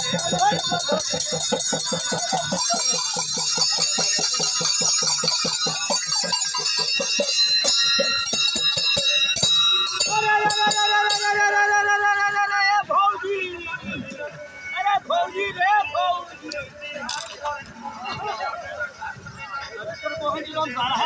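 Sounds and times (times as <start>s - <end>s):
hand drum beaten fast: 0.0s - 8.9s
jingling bells: 0.0s - 12.1s.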